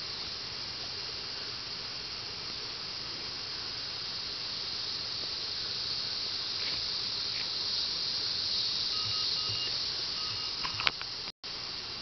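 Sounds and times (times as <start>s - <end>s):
insects calling high-pitched hiss: 0.0s - 12.0s
faint on-and-off tone: 8.9s - 11.0s.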